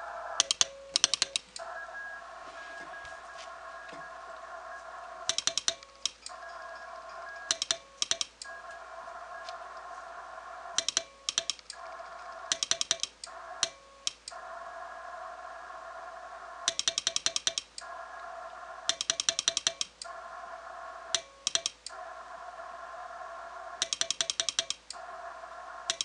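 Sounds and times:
steady hum of tones and hiss: 0.0 - 26.0.

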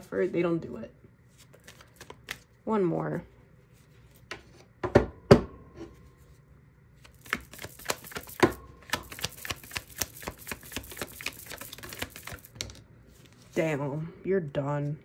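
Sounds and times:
cards shuffling clicks: 1.4 - 2.5, 7.0 - 12.8.

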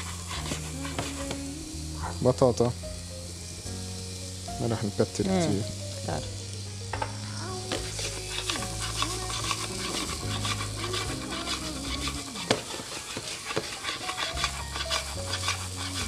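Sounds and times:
vegetables sizzling in oil: 0.0 - 16.0
pan knock: 6.9 - 7.2.

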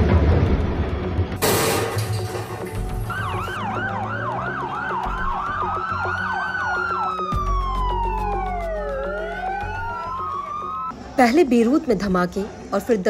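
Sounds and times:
siren wailing: 3.0 - 10.9
siren fast yelp: 3.1 - 10.9.

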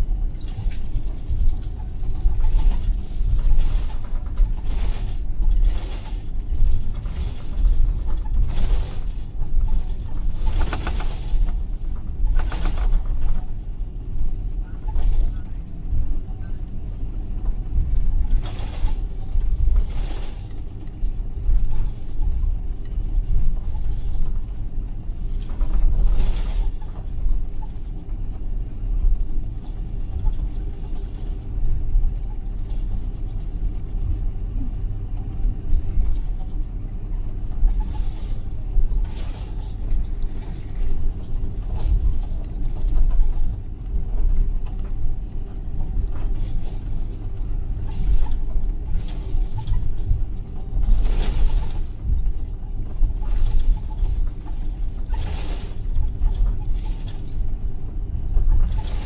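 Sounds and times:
aircraft cabin rumble: 0.0 - 59.0
cabin creaks and rattles: 29.0 - 57.5.

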